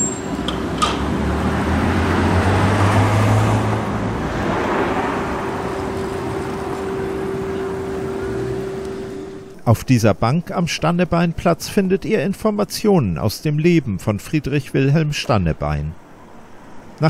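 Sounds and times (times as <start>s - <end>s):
car passing by: 0.4s - 9.5s.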